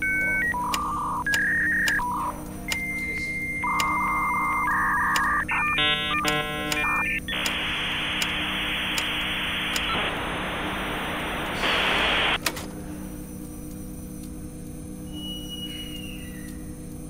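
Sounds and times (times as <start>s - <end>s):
click: 0.7s - 2.0s, 5.1s - 5.3s, 6.2s - 7.6s, 8.2s - 9.9s
dial-up modem hiss: 3.2s - 12.4s.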